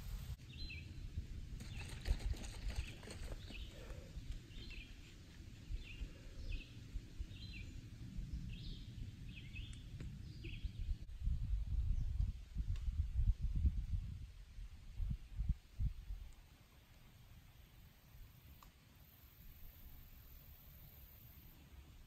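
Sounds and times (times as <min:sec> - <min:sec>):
wind rumble on microphone: 0:00.0 - 0:16.4
songbird chirping: 0:01.6 - 0:11.1.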